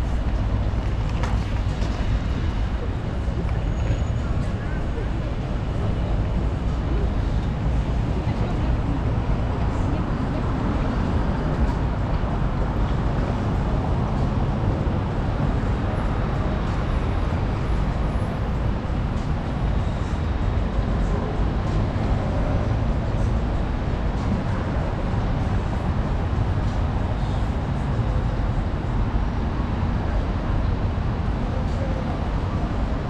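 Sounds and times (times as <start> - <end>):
road traffic rumble: 0.0 - 33.0.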